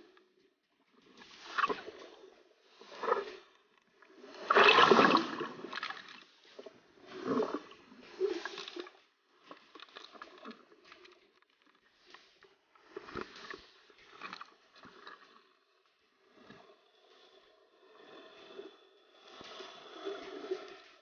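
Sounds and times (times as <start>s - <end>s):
scuba exhaled air bubbling: 4.1s - 9.0s.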